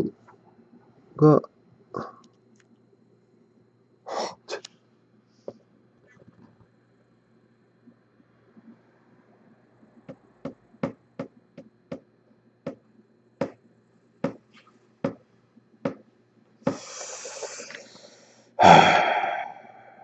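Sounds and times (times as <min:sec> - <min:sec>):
rushing hiss: 0:16.7 - 0:17.9.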